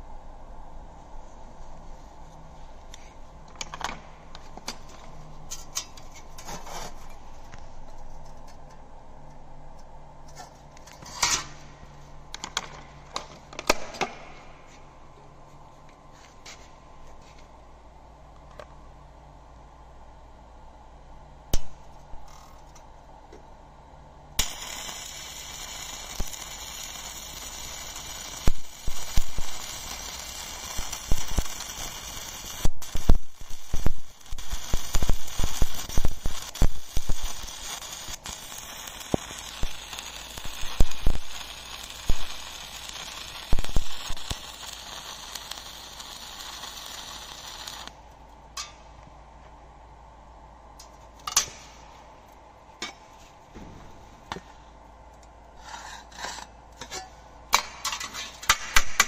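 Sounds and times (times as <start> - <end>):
welding arc crackling and popping: 12.3 - 14.5, 24.4 - 48.8, 57.5 - 59.0.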